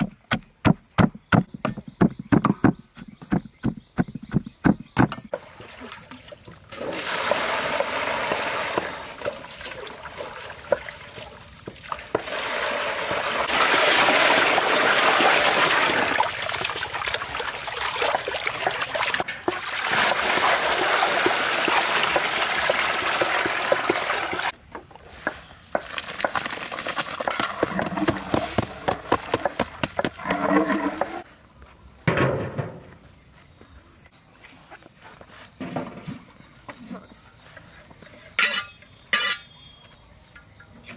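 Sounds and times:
water sloshing and splashing: 0:05.3 - 0:24.6.

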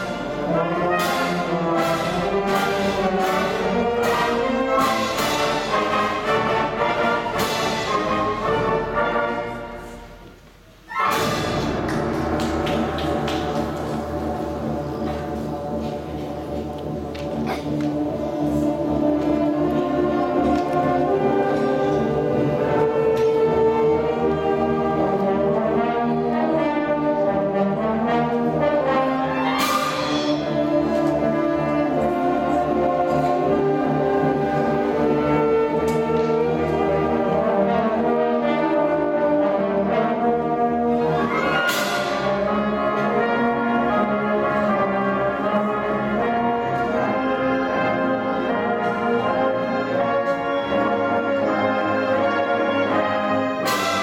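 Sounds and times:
concert band playing: 0:10.9 - 0:54.0.

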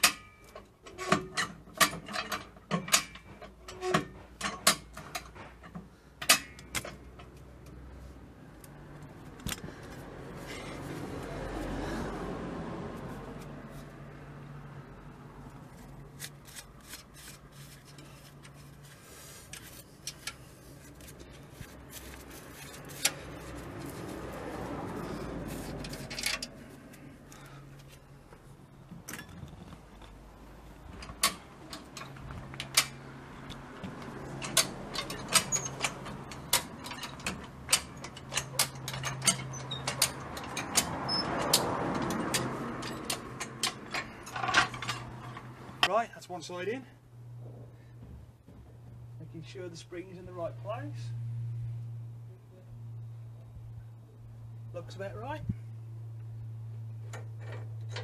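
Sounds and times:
farm jack metal clicking: 0:00.0 - 0:07.8, 0:19.4 - 0:24.0, 0:25.0 - 0:27.5, 0:30.8 - 0:46.0.

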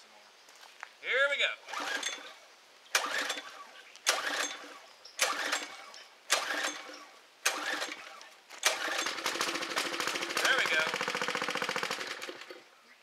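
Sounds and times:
engine running: 0:01.7 - 0:02.4, 0:03.0 - 0:12.7
recoil rope pulls cranking engine: 0:01.7 - 0:02.4, 0:03.0 - 0:12.6.

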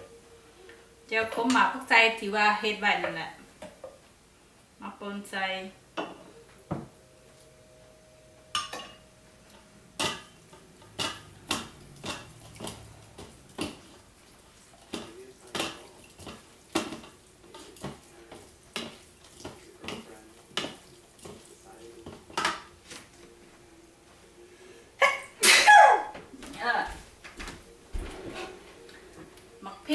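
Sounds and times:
wooden utensils knocking on a bowl: 0:08.4 - 0:14.0, 0:14.8 - 0:23.0.

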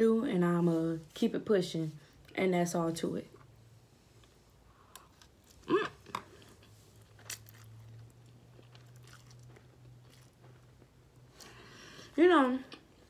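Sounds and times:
person chewing: 0:04.2 - 0:11.7.

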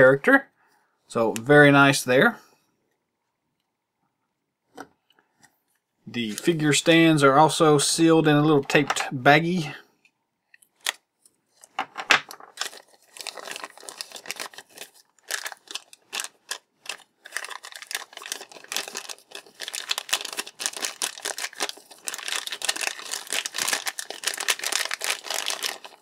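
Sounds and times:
plastic bag crinkling: 0:11.6 - 0:26.0.

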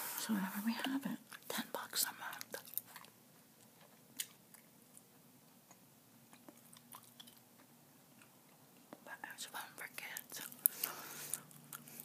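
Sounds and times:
gum chewing mouth clicks: 0:03.8 - 0:04.7, 0:05.6 - 0:09.0.

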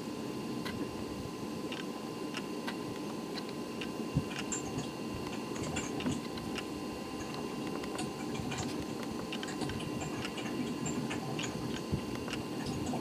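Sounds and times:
faint steady whine: 0:00.0 - 0:13.0
steady low hum: 0:00.0 - 0:13.0
light regular ticking: 0:01.7 - 0:13.0.

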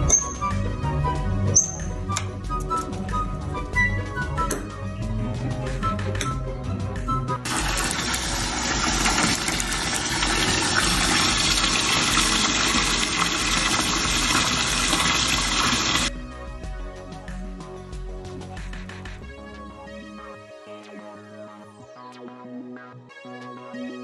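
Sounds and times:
background music: 0:00.0 - 0:24.0
tap water running into bathtub: 0:07.5 - 0:16.1.

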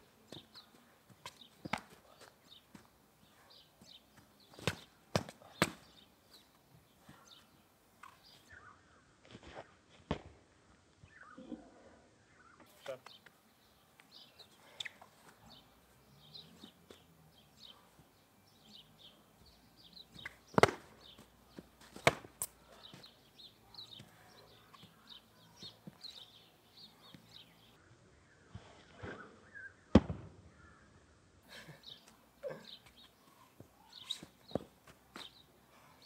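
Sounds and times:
small birds chirping: 0:00.0 - 0:09.8, 0:11.0 - 0:36.0
foam sabres smacking: 0:04.6 - 0:05.9, 0:20.2 - 0:21.2, 0:21.8 - 0:22.5.

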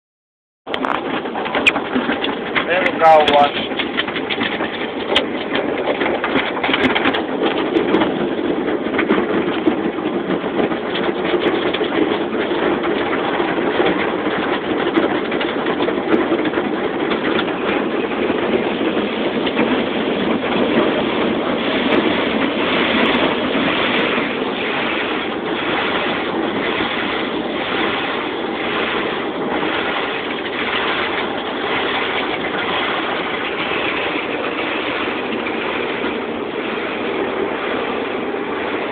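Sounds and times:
car wash water spray: 0:17.5 - 0:38.9.

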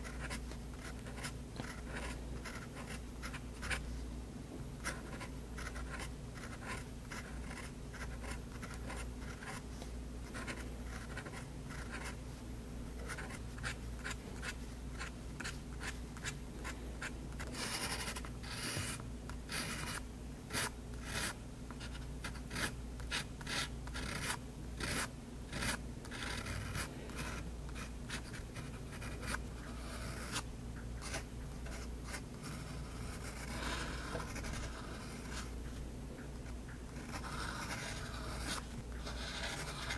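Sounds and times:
fountain pen scratching on paper: 0:00.0 - 0:03.8, 0:04.8 - 0:09.6, 0:10.2 - 0:12.2, 0:13.0 - 0:30.4, 0:31.0 - 0:35.5, 0:37.0 - 0:39.9.

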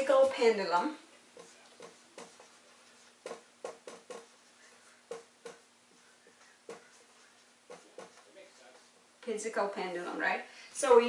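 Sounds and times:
marker writing on whiteboard: 0:01.3 - 0:09.1.

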